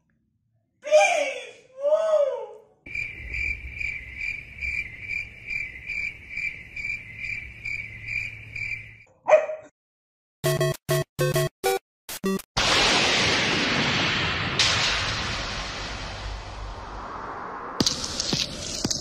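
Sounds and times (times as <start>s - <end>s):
shrill cricket chirping: 2.9s - 9.1s.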